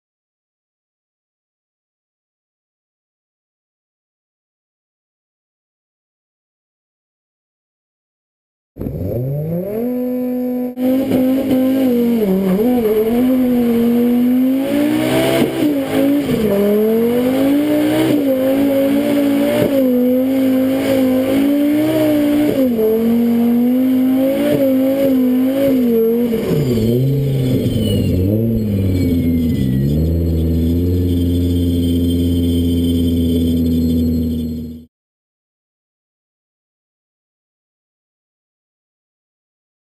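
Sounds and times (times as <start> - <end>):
car engine revving high: 8.8 - 34.8.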